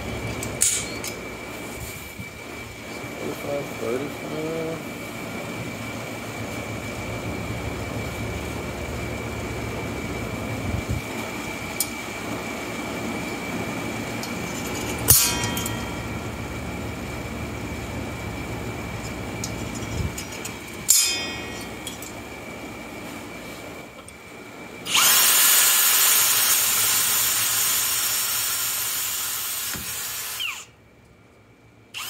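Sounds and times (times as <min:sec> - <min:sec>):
faint high whine: 0:00.0 - 0:32.0
mechanical running hum: 0:00.0 - 0:32.0
sharp metallic clank: 0:00.6 - 0:01.2, 0:14.5 - 0:16.2, 0:20.2 - 0:22.2.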